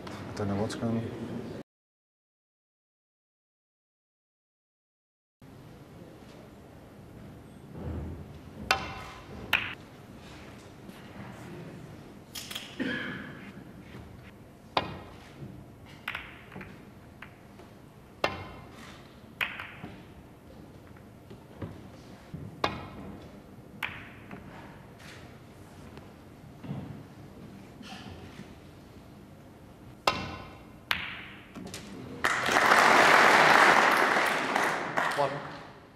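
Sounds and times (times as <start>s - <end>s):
snooker balls clicking: 8.6s - 9.8s, 15.9s - 18.7s, 19.3s - 21.8s, 22.6s - 24.5s, 30.0s - 31.9s.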